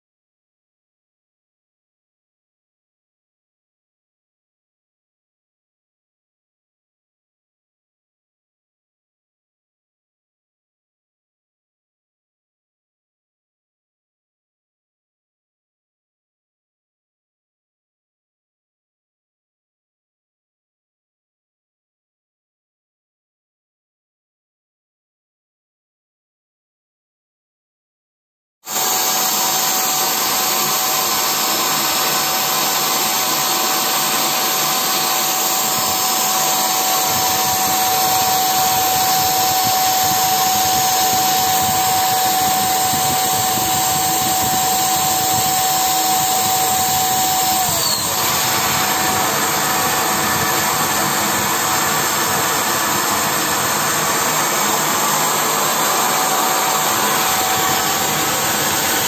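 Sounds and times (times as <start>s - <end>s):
electric paint sprayer running: 28.7s - 59.0s.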